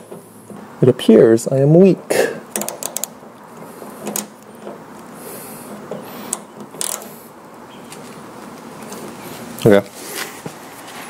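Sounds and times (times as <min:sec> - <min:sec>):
wrench clicking: 0:02.5 - 0:03.2, 0:06.3 - 0:07.1.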